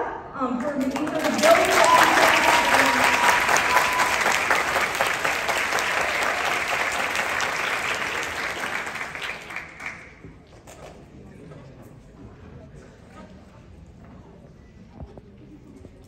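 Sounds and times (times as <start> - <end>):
audience applauding: 0.6 - 10.2.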